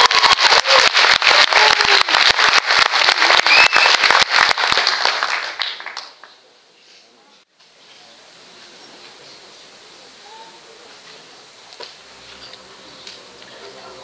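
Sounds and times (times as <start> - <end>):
audience cheering: 0.0 - 6.0
audience applauding: 0.0 - 6.5.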